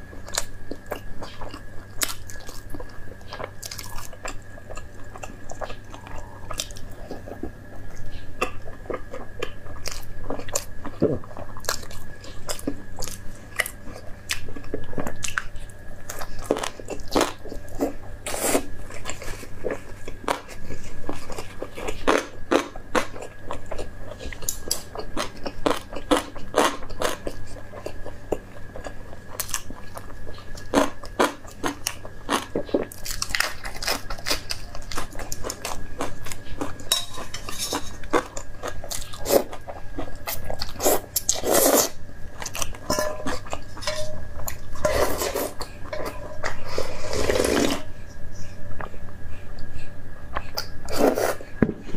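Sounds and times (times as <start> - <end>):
crunchy chewing of fried food: 0.0 - 51.9
slurping noodles: 46.7 - 47.9.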